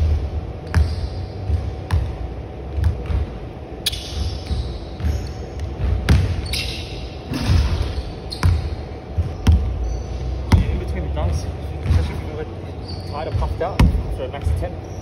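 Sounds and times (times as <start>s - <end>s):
basketball bouncing on wooden floor: 0.0s - 6.5s, 7.5s - 9.7s, 10.4s - 10.9s, 11.8s - 12.2s, 13.2s - 14.1s.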